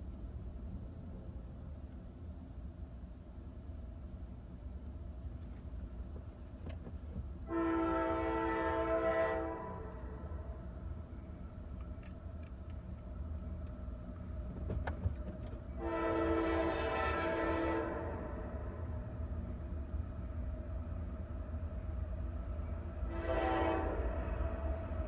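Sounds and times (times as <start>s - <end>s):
distant train air horn blasts: 7.4s - 10.6s, 15.8s - 18.9s, 23.1s - 24.8s.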